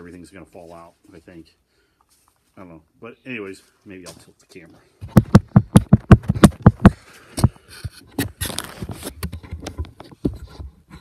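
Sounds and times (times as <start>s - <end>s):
loud knocks or clicks: 5.0s - 7.5s
scraping rustle: 7.7s - 11.0s.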